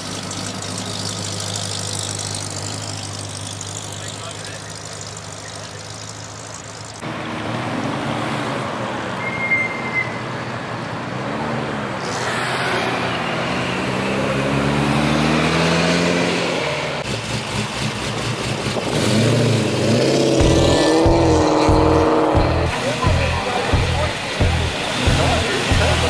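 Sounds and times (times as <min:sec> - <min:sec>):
car engine running: 0:00.0 - 0:07.0, 0:17.0 - 0:26.0
cars driving past slowly: 0:00.0 - 0:26.0
traffic noise: 0:00.0 - 0:26.0.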